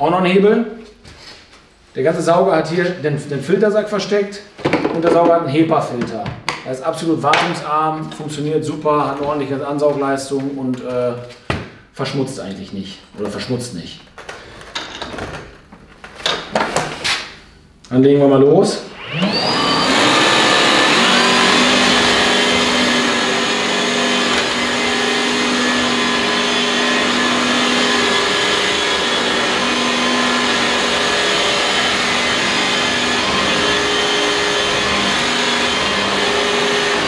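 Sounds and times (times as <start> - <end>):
vacuum cleaner running: 18.9 - 37.0.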